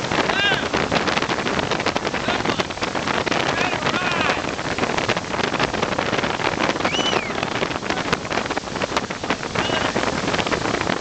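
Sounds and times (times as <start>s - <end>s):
water spray rushing: 0.0s - 11.0s
wind buffeting microphone: 0.0s - 11.0s.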